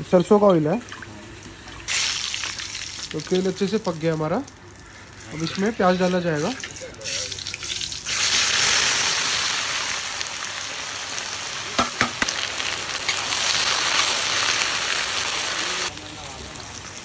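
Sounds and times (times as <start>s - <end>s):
onions sizzling in hot oil: 1.5s - 17.0s.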